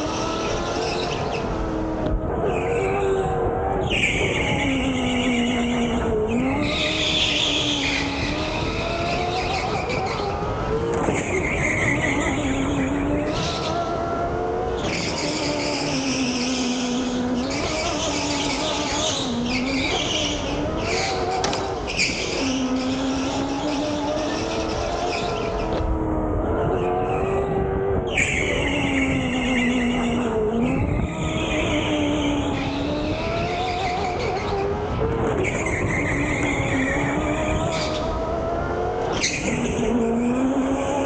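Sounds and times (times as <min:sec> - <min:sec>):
electric motor whining: 0:04.3 - 0:28.0.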